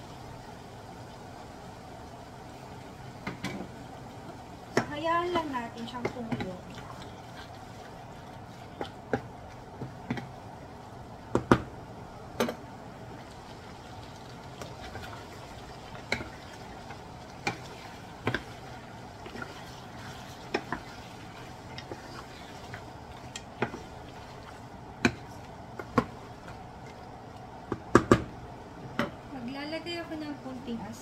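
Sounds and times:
pan sizzling hiss: 13.1 - 26.9
spatula scraping a pan: 17.4 - 24.5.

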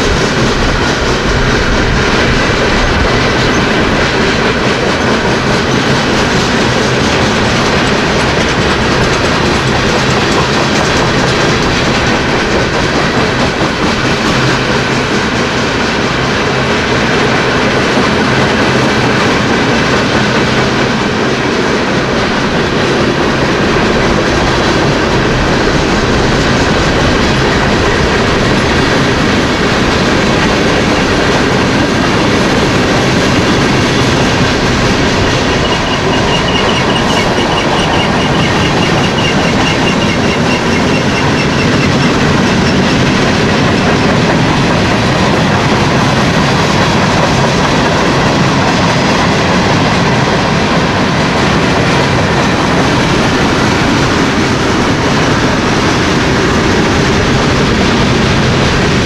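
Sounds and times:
train wheels clickety-clack: 0.0 - 59.0
faint high wheel squeal: 35.4 - 42.1.

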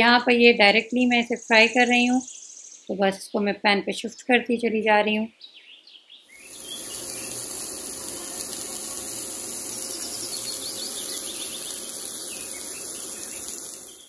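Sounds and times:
patties sizzling on grill pan: 6.4 - 14.0.

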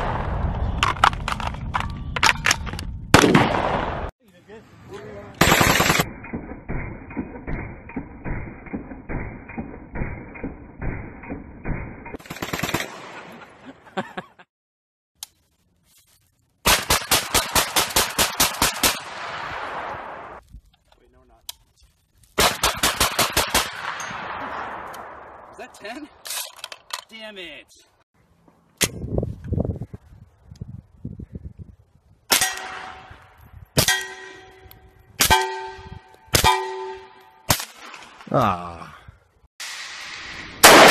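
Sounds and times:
rifle firing rapidly: 5.4 - 6.1, 22.4 - 24.0
pistol shots: 22.4 - 25.3, 40.6 - 40.9
metallic ringing of steel target: 32.3 - 37.2.

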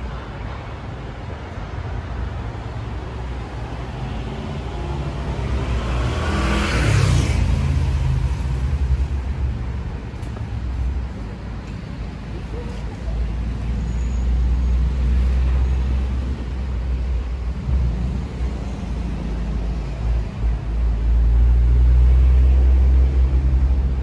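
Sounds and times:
traffic rumble: 0.0 - 24.0
vehicle passing close by: 4.4 - 8.5.

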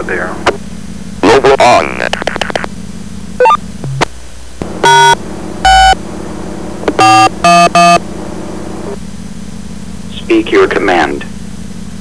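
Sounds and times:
touch-tone keypad beeps: 3.4 - 4.0, 7.0 - 8.0.

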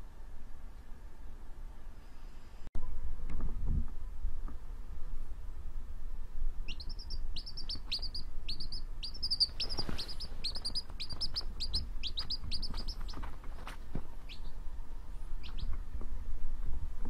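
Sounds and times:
low steady rumble: 0.0 - 17.0
baby chick peeping: 6.6 - 16.2.

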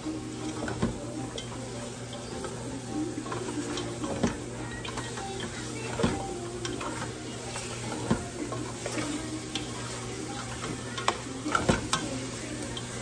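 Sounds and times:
meat sizzling in a pot: 0.0 - 13.0.

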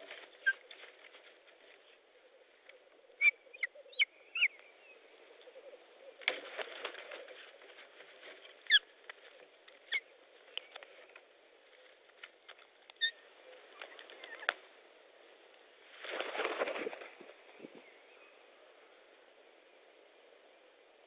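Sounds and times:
wingbeats: 5.6 - 14.7.

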